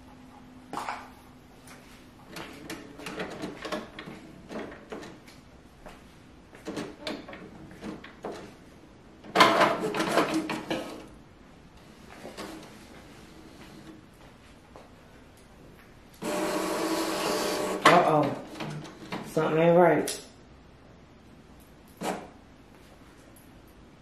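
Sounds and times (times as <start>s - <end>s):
inkjet printer mechanism clicking and whirring: 2.3s - 5.2s, 9.3s - 11.1s, 16.2s - 19.2s.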